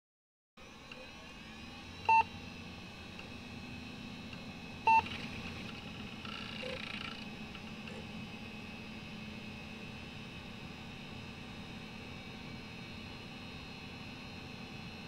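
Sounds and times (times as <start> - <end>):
short electronic beeps: 4.9 - 5.2.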